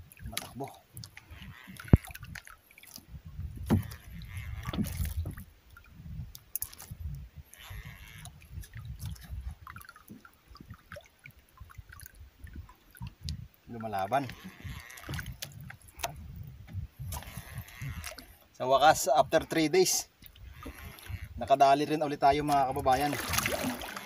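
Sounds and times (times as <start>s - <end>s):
water slapping against hull: 0.0s - 18.4s, 22.4s - 24.0s
low rumbling: 11.6s - 18.2s.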